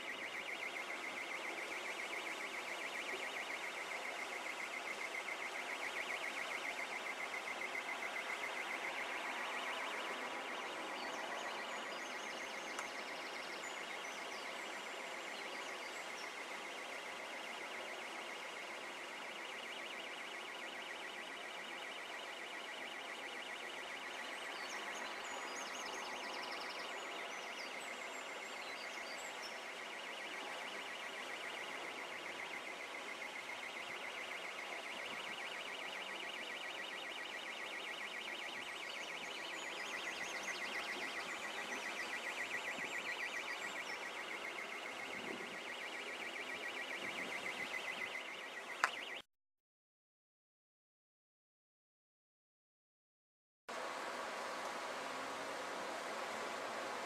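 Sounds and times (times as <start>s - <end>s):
river rushing: 53.7s - 57.0s.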